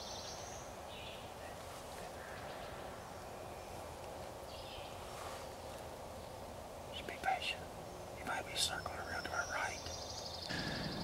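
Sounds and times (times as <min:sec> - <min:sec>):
low outdoor hiss: 0:00.0 - 0:11.0
faint bird chirps: 0:06.9 - 0:11.0.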